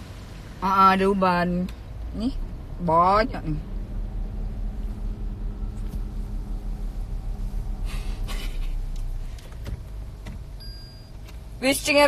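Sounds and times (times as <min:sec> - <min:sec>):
car engine rumble inside cabin: 0:00.0 - 0:12.0.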